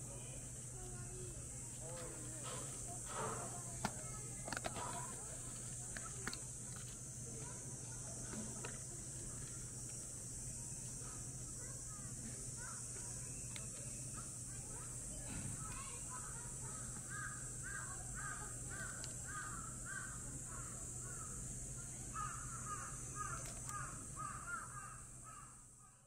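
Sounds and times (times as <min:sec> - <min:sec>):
steady high hiss: 0:00.0 - 0:26.0
bird calling: 0:15.6 - 0:21.5, 0:22.1 - 0:26.0.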